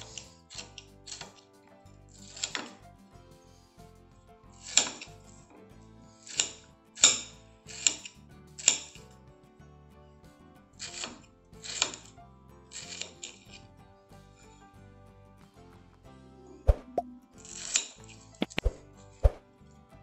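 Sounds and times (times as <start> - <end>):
knife cutting through chocolate: 0.0 - 2.9, 10.8 - 12.2, 12.8 - 13.6
soft background music: 0.0 - 20.0.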